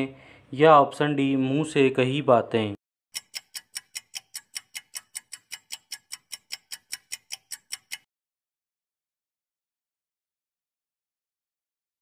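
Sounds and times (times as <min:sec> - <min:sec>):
timer ticking: 0:03.1 - 0:08.1.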